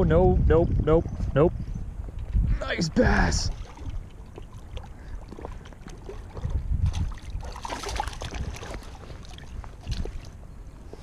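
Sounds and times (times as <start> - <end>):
wind buffeting microphone: 0.0 - 11.0
fish thrashing and splashing: 3.5 - 10.4.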